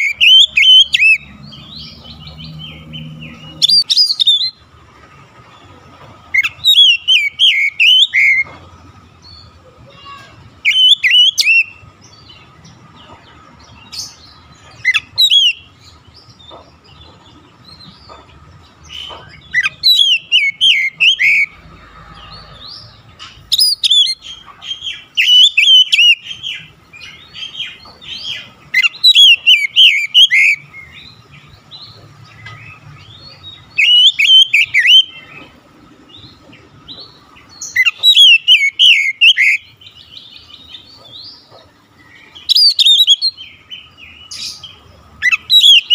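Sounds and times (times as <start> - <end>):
bird singing whistled notes: 0.0 - 4.6, 6.4 - 8.5, 10.6 - 12.4, 14.8 - 15.7, 19.0 - 21.6, 23.5 - 31.9, 33.0 - 35.4, 37.6 - 41.5, 42.4 - 45.9.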